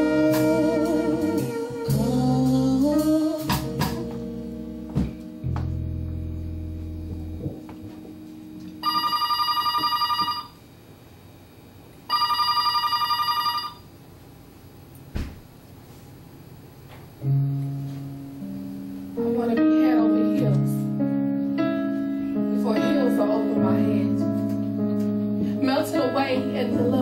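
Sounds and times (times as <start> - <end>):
band music: 0.0 - 8.8
telephone ringing electronic warble: 8.8 - 10.6, 12.1 - 13.8.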